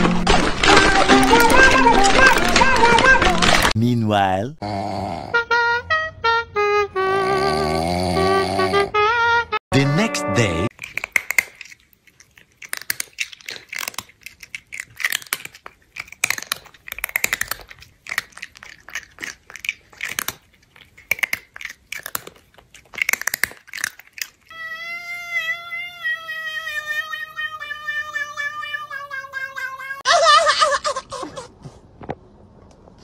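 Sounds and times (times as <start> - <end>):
cat chewing and crunching food: 0.0 - 3.8, 10.7 - 30.0.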